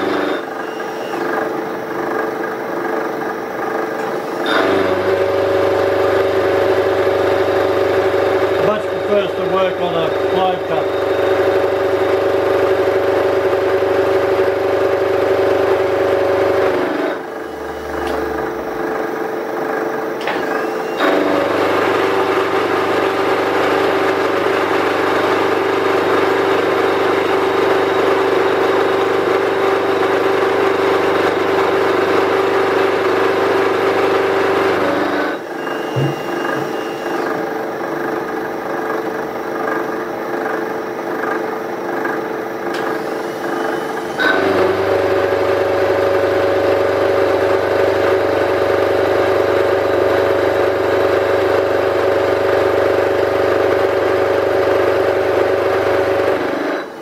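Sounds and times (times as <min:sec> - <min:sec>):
milling machine gears whining: 0:00.0 - 0:57.0.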